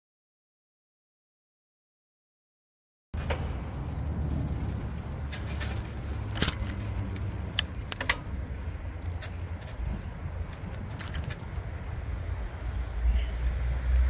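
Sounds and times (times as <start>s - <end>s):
bicycle tyres rumbling on pavement: 3.2s - 14.0s
bike clicking over bumps: 3.2s - 14.0s.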